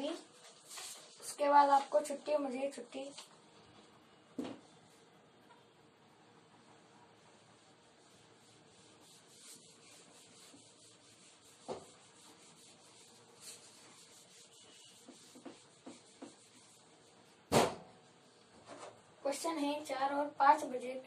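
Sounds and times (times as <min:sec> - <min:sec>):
eraser rubbing whiteboard: 0:06.8 - 0:17.4
sharp knock: 0:17.5 - 0:17.9.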